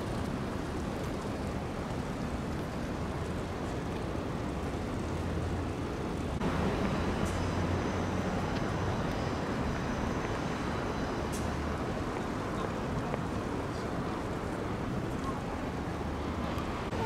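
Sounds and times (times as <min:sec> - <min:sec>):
low engine hum: 0:00.0 - 0:17.0
traffic noise: 0:00.0 - 0:17.0.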